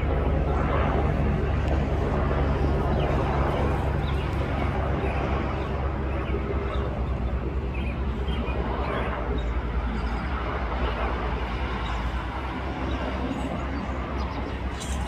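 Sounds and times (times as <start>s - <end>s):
distant helicopter drone: 0.0s - 15.0s.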